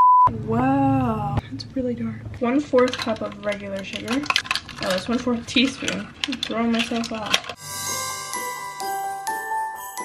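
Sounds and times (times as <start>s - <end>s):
bell-like mallet notes: 7.6s - 10.0s.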